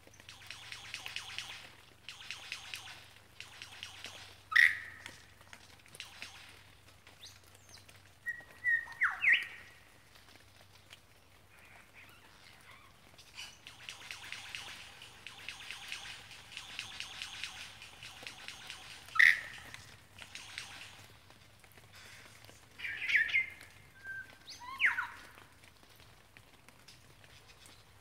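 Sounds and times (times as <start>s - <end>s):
lyrebird calling: 3.8s - 5.2s, 11.6s - 21.1s.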